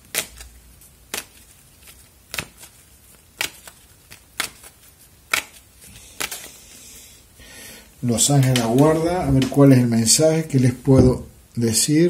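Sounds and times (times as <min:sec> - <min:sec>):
cards clicking: 0:00.0 - 0:06.6, 0:08.3 - 0:09.6.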